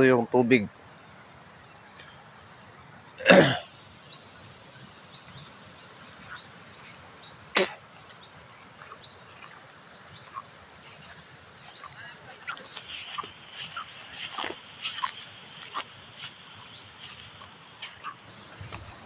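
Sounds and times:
crickets and insects droning: 0.0s - 19.0s.

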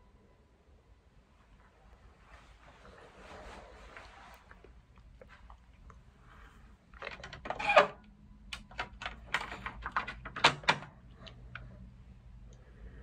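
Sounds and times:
plastic clicks and rattles: 7.0s - 11.7s.

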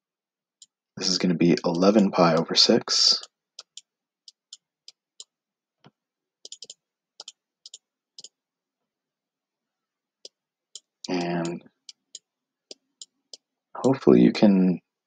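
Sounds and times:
mouse clicks: 6.5s - 8.4s, 10.8s - 13.5s.

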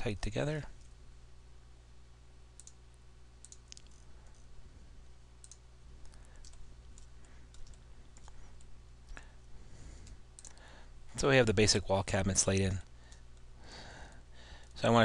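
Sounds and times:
steady low hum: 0.0s - 15.0s
computer mouse clicks: 2.6s - 2.8s, 3.4s - 4.5s, 5.4s - 9.2s, 10.0s - 10.6s.

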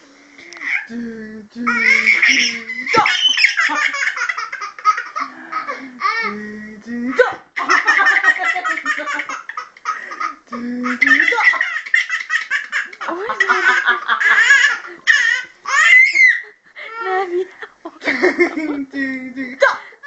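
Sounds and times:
baby belly-laughing: 1.7s - 6.3s, 7.6s - 17.0s.

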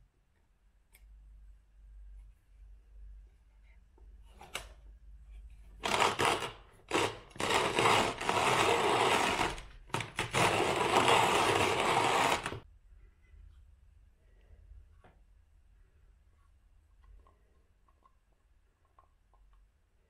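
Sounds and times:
hand coffee mill grinding beans: 5.8s - 12.6s.

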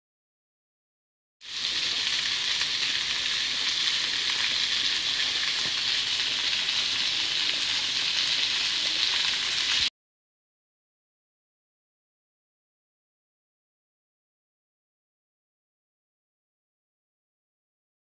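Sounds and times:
meat sizzling in frying pan: 1.4s - 9.9s.

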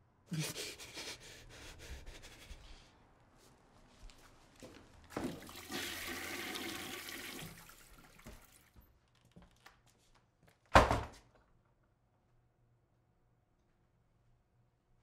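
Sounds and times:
toilet flushing: 5.1s - 8.8s.

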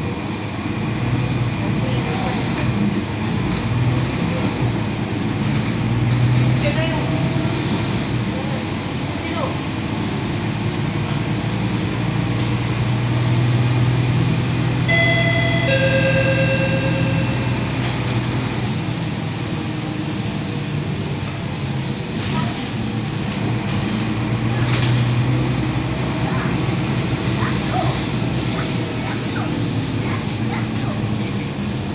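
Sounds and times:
bus engine and road hum: 0.0s - 31.9s
two-note electronic chime: 14.9s - 18.3s.

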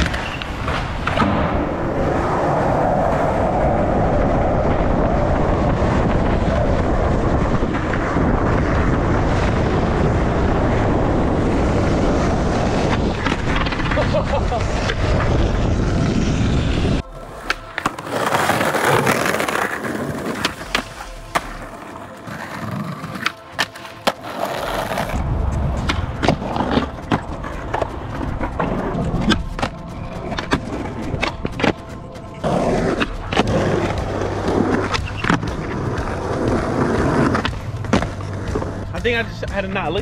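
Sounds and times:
skateboard clacks: 0.0s - 1.7s, 25.8s - 40.0s
skateboard rolling over asphalt: 0.0s - 39.1s.

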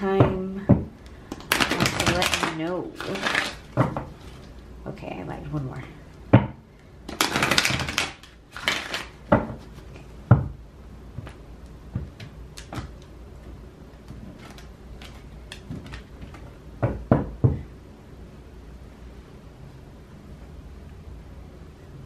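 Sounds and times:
cards being shuffled: 1.3s - 4.6s, 7.1s - 10.1s, 14.0s - 16.5s.

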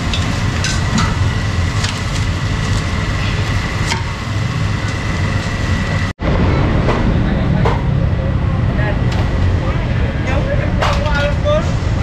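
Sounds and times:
thin steady whine: 0.0s - 6.2s
market rumble: 0.0s - 12.0s.

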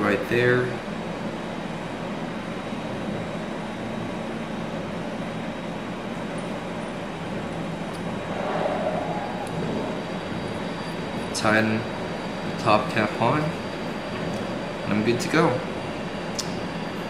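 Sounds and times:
low hum: 7.2s - 12.6s.

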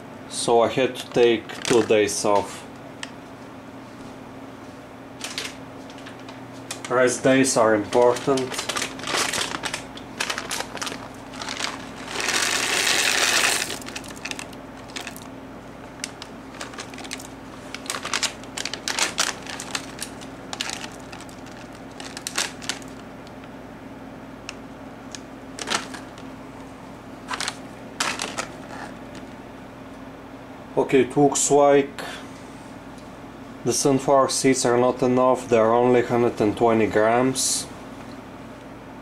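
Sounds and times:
plastic bag crinkling: 1.1s - 2.4s, 5.2s - 23.5s, 25.1s - 26.3s, 27.2s - 29.4s.

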